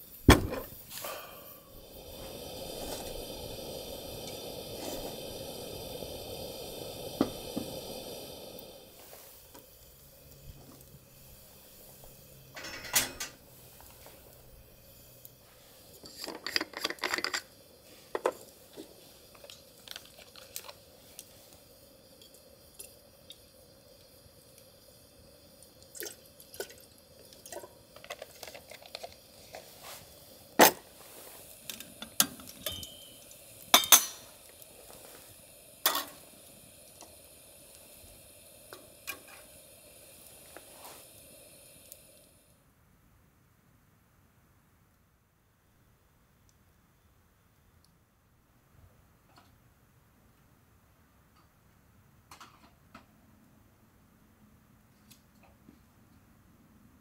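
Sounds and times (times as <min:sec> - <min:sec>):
steady hiss: 0:00.0 - 0:42.8
cookware clinking and knocking: 0:12.6 - 0:13.4, 0:32.6 - 0:33.2.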